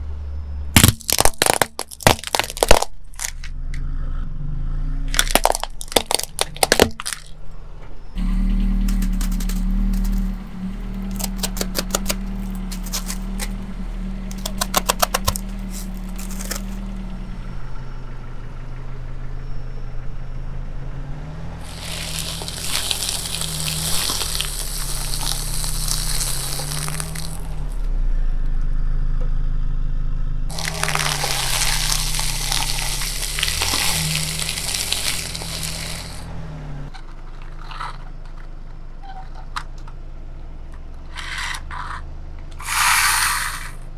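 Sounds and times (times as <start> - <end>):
low steady hum: 0.0 - 43.9
foil crackling under car tyre: 0.8 - 3.5, 5.1 - 7.4, 8.9 - 13.6, 14.3 - 17.1, 21.6 - 27.8, 30.5 - 36.3.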